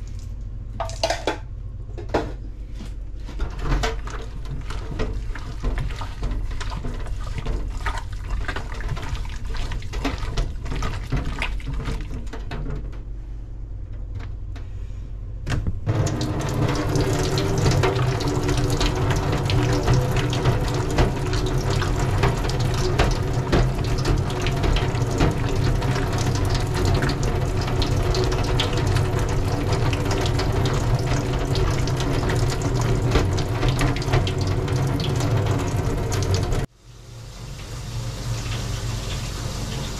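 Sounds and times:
hands clicking and rubbing in sink: 0:15.9 - 0:36.7
tap water splashing into sink: 0:15.9 - 0:36.7.

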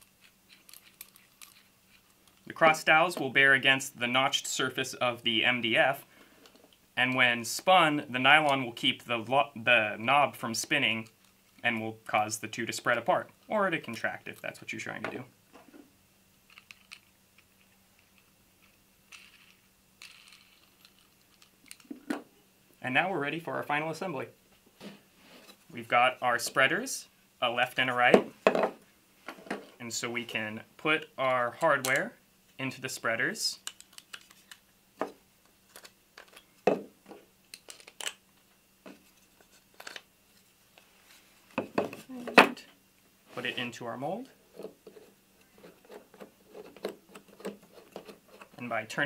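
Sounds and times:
small metal clicks: 0:00.1 - 0:02.5, 0:16.5 - 0:21.9, 0:33.6 - 0:34.6.

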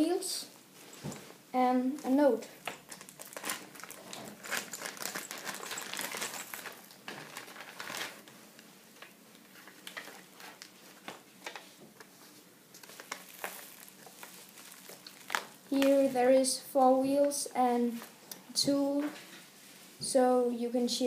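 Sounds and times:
plastic bag and paper rustling: 0:02.0 - 0:16.4.

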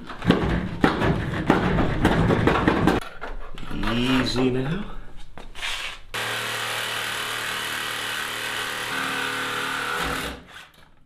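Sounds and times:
reciprocating saw cutting metal: 0:06.2 - 0:10.7.

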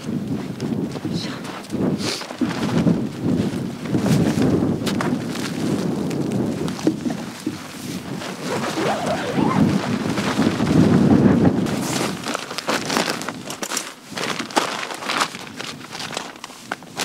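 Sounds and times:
wind buffeting microphone: 0:00.0 - 0:17.0
short scratchy sounds: 0:08.4 - 0:09.8.

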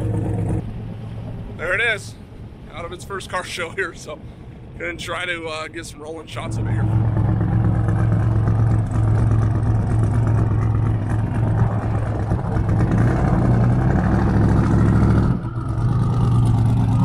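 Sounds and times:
loud car engine running: 0:00.0 - 0:00.8, 0:06.4 - 0:17.0.

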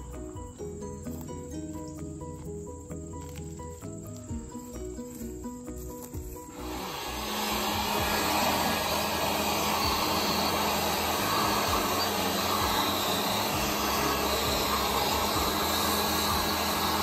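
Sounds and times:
electric blower running: 0:06.1 - 0:17.0.

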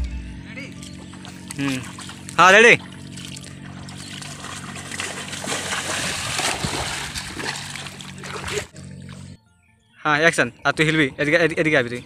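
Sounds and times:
water splashing and sloshing: 0:01.0 - 0:09.4.

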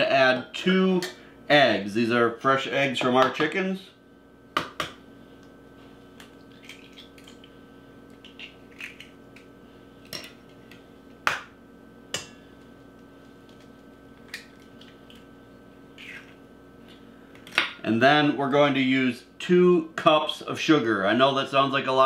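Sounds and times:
faint steady hum: 0:00.0 - 0:22.0
eggs cracking on metal bowl: 0:06.2 - 0:07.5, 0:08.1 - 0:11.5, 0:13.5 - 0:15.3.

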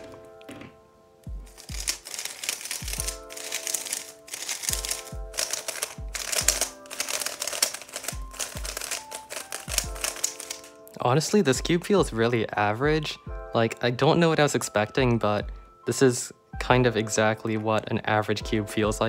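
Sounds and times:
puzzle cube plastic clicking: 0:01.5 - 0:10.8.

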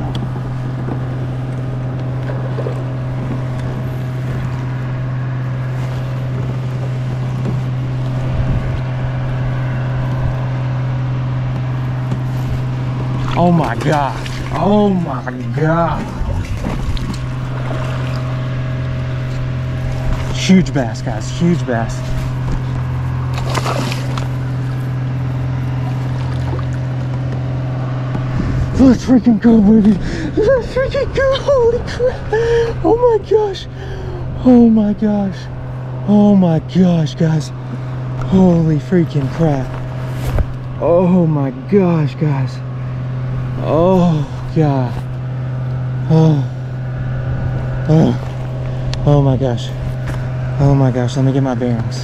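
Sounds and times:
boat motor humming: 0:00.0 - 0:52.0
water sloshing against hull: 0:00.0 - 0:52.0
water splash: 0:13.2 - 0:14.7, 0:23.2 - 0:24.5.

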